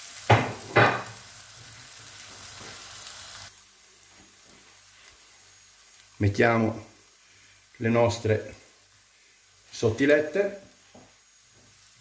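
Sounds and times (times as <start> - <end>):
eggs sizzling in a pan: 0.0 - 12.0.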